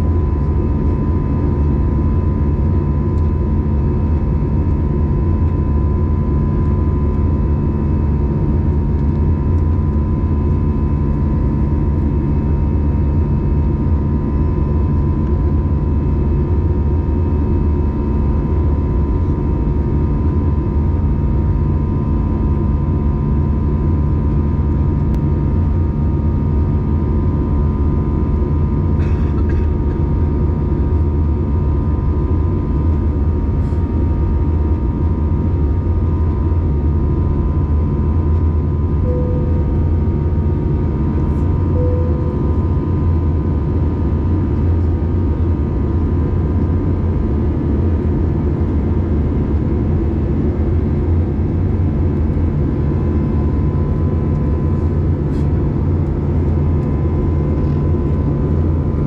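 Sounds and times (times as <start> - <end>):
airplane cabin drone: 0.0 - 59.0
brief cabin tones: 39.0 - 43.1.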